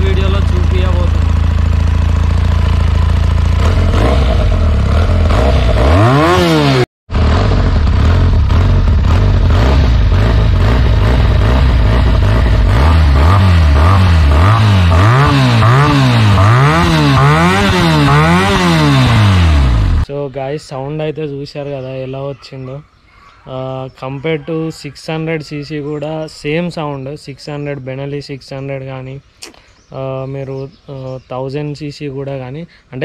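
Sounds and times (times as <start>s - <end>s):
motorcycle engine idling and revving: 0.0s - 20.1s.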